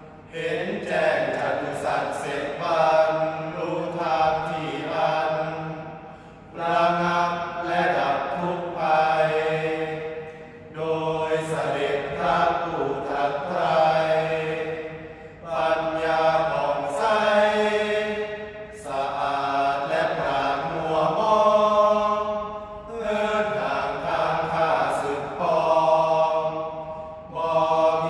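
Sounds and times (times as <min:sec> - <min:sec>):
men chanting in unison: 0:00.0 - 0:28.0.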